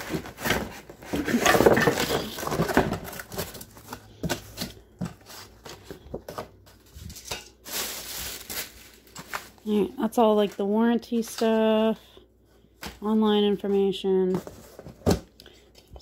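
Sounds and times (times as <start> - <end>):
cardboard rustling and scraping: 0.0 - 9.8, 13.6 - 15.3.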